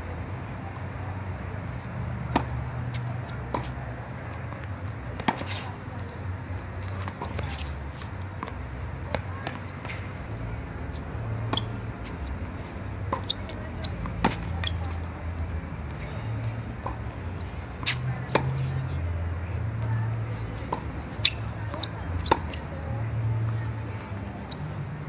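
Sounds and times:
tennis ball bouncing: 0:02.1 - 0:06.0, 0:06.6 - 0:10.1, 0:10.9 - 0:22.7
tennis racket hitting ball: 0:02.3 - 0:03.8, 0:04.5 - 0:05.7, 0:06.8 - 0:10.0.

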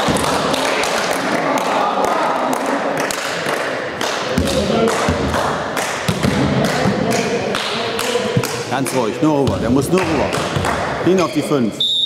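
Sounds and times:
thuds and taps in sports hall: 0:00.0 - 0:00.6, 0:04.3 - 0:07.3, 0:08.0 - 0:11.2.

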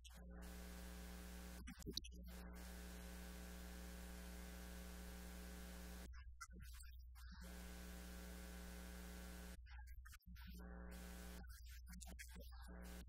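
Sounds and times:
electrical mains hum: 0:00.0 - 0:06.1, 0:07.4 - 0:09.6
electrical buzz: 0:00.4 - 0:06.1, 0:07.4 - 0:09.6.

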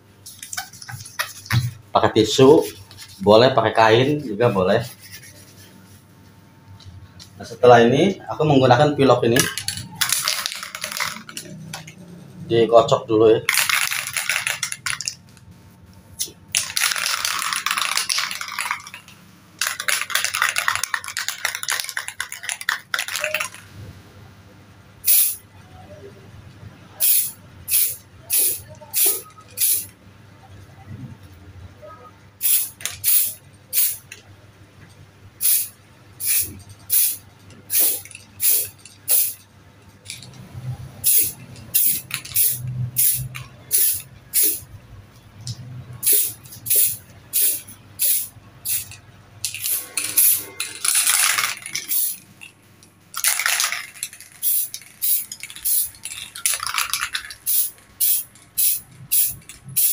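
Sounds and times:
spray can ball rattling: 0:00.2 - 0:01.8, 0:04.4 - 0:05.7, 0:09.3 - 0:12.0, 0:13.5 - 0:15.3, 0:16.2 - 0:23.7, 0:25.1 - 0:25.4, 0:27.0 - 0:29.9, 0:32.4 - 0:34.2, 0:35.4 - 0:40.4, 0:41.0 - 0:44.7, 0:45.5 - 0:59.9
spray paint hissing: 0:00.2 - 0:01.8, 0:09.5 - 0:11.6, 0:16.2 - 0:19.0, 0:19.6 - 0:23.6, 0:25.0 - 0:25.4, 0:27.0 - 0:29.9, 0:32.4 - 0:34.2, 0:35.4 - 0:39.4, 0:41.0 - 0:44.7, 0:46.0 - 0:52.3, 0:53.2 - 0:59.9.

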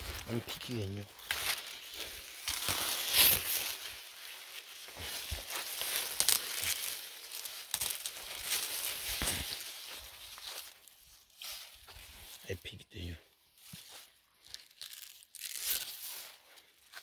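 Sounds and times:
dry leaves rustling and crackling: 0:00.0 - 0:12.4, 0:13.6 - 0:17.0
crisp snaps of stalks: 0:00.8 - 0:10.8, 0:13.7 - 0:17.0.

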